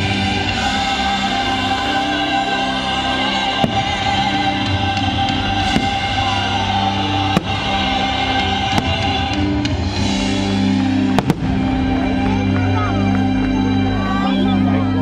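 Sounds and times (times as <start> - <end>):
music over loudspeakers: 0.0 - 15.0
fireworks bursting: 3.5 - 4.4, 5.0 - 12.4.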